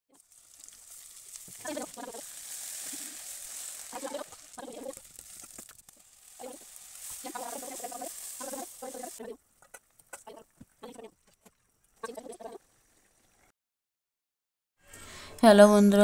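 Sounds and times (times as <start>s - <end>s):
fish frying in hot oil: 0.1s - 9.3s
hen clucking: 7.2s - 11.4s, 12.0s - 12.6s.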